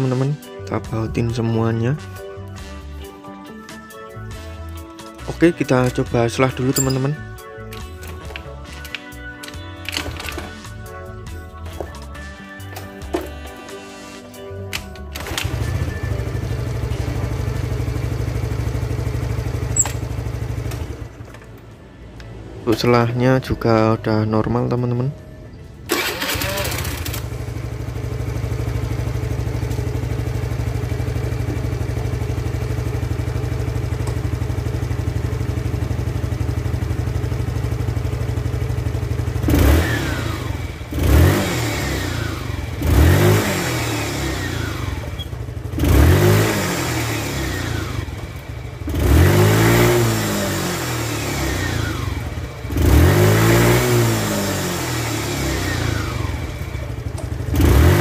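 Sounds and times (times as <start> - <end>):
scooter engine idling and revving: 15.1 - 21.8, 25.6 - 58.0.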